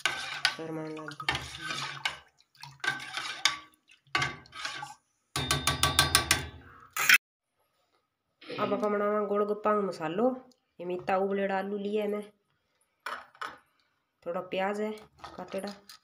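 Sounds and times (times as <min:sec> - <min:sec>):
liquid swirling: 0:00.0 - 0:05.0
metal spoon stirring in steel bowl: 0:00.0 - 0:06.6.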